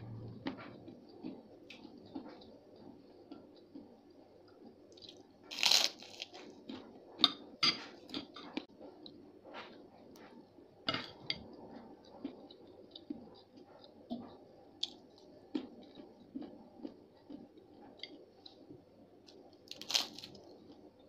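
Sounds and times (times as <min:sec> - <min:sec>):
quiet chewing: 0:00.4 - 0:07.0, 0:11.4 - 0:21.0
cracker crunching: 0:05.0 - 0:06.6, 0:19.6 - 0:20.8.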